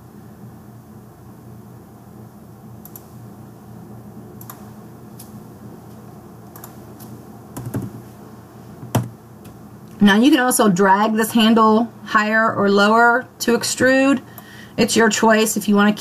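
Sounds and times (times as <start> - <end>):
low steady hum: 0.0 - 16.0
keyboard keystrokes: 7.6 - 8.0.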